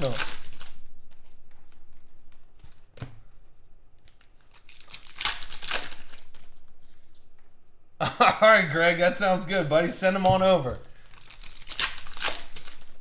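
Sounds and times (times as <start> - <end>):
cards crinkling and rustling: 0.0 - 3.2, 4.0 - 7.4, 10.4 - 13.0.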